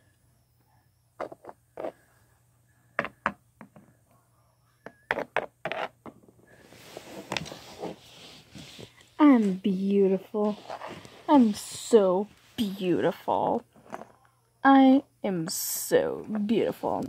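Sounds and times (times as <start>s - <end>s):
plastic toys knocking on floor: 3.0s - 3.9s
soft rustling: 6.4s - 12.7s.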